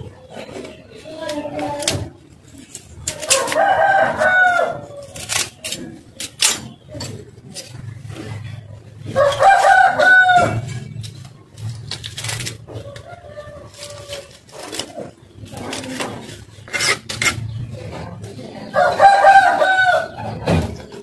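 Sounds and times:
rooster crowing: 0:03.3 - 0:05.1, 0:09.1 - 0:10.7, 0:18.8 - 0:20.2.

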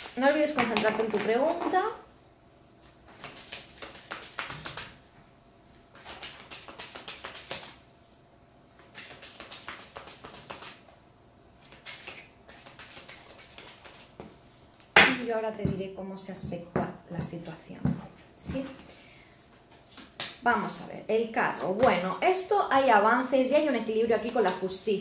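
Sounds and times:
cards being shuffled: 0:03.1 - 0:04.9, 0:05.9 - 0:07.8, 0:08.8 - 0:10.8, 0:11.6 - 0:14.2.

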